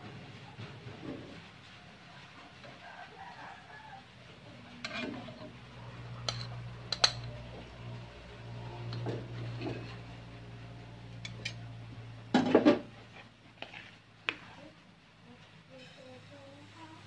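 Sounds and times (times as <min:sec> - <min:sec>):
spatula scraping frying pan: 0:03.6 - 0:14.8.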